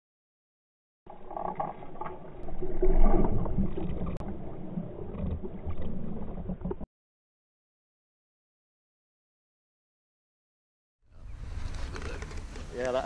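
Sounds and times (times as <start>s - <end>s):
muffled water splashing: 1.1s - 6.9s.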